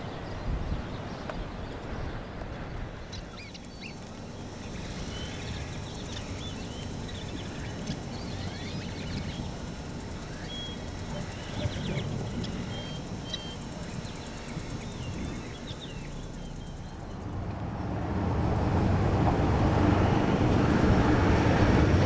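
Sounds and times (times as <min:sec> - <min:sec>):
steady low rumble: 0:00.3 - 0:22.0
birds chirping and whistling: 0:03.0 - 0:17.2.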